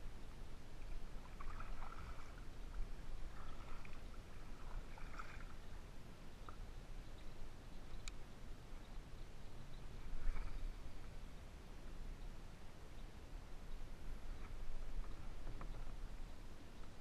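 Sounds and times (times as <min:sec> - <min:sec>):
paddle splashing in water: 0:01.2 - 0:05.6.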